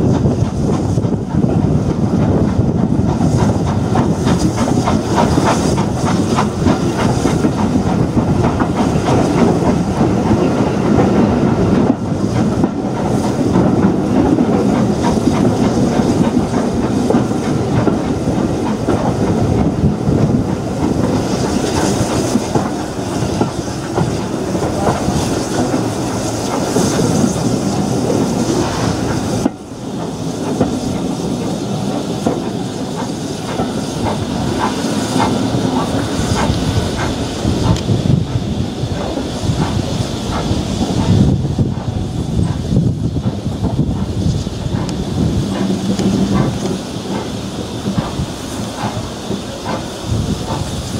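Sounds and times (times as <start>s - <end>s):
rush and hiss of steam: 0.0s - 50.9s
train wheels clattering over rail joints: 0.0s - 50.9s.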